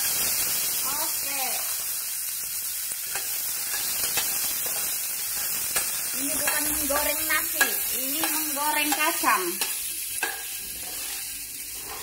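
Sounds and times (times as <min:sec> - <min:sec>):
seeds sizzling in oil: 0:00.0 - 0:12.0
spatula clicks and scrapes: 0:03.1 - 0:11.2.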